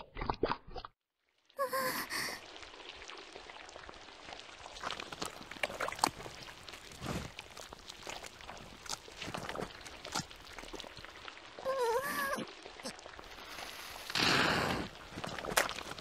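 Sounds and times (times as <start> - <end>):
woman gasping: 1.6 - 2.4, 11.7 - 12.4
quicksand watery hiss and pops: 1.8 - 16.0.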